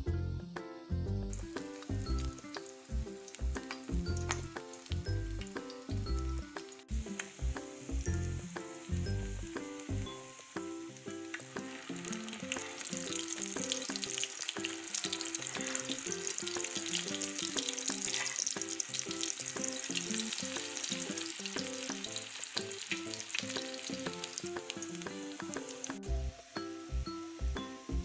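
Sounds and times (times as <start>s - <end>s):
melodic background music: 0.0s - 28.0s
food sizzling in oil: 0.4s - 28.0s.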